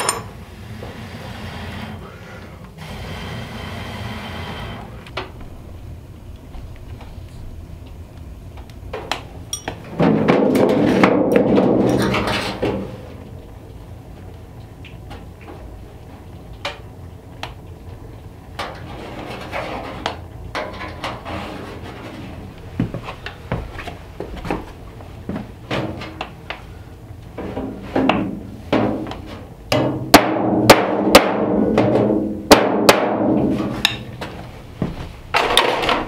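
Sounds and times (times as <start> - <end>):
hammer striking sheet metal: 29.7 - 34.1.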